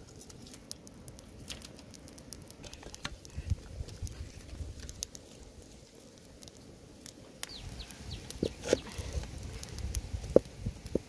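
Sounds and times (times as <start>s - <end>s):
wood fire crackling and popping: 0.0s - 11.0s
bird chirping: 7.4s - 9.0s.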